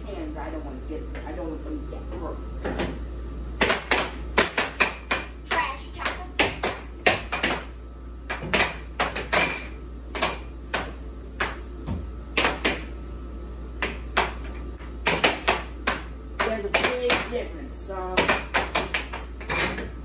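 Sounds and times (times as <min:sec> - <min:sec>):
steady low hum: 0:00.0 - 0:20.0
air hockey puck clacking: 0:03.6 - 0:11.7, 0:12.3 - 0:13.0, 0:13.8 - 0:17.4, 0:18.2 - 0:19.6.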